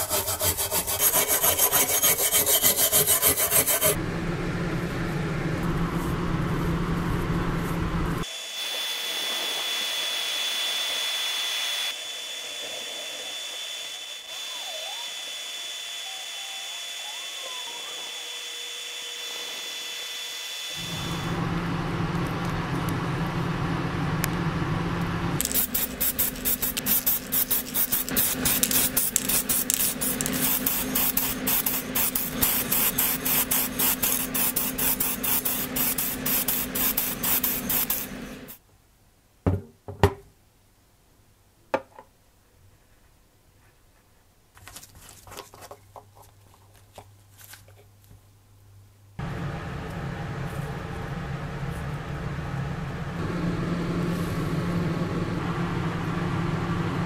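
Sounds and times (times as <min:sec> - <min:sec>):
low machine hum: 0:03.9 - 0:08.2, 0:20.8 - 0:38.6, 0:49.2 - 0:57.0
paint stripper fizzing: 0:25.4 - 0:38.2
spray painting hiss: 0:25.4 - 0:38.6.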